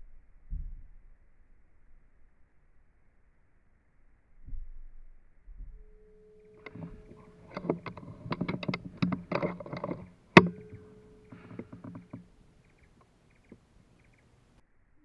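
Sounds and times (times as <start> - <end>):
clicks and rustles: 6.5 - 14.3.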